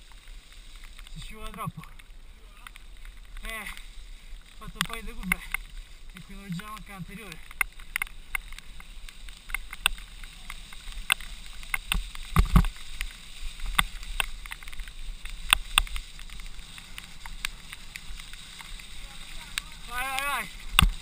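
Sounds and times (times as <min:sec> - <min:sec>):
bike rattling and knocking: 0:04.6 - 0:21.0.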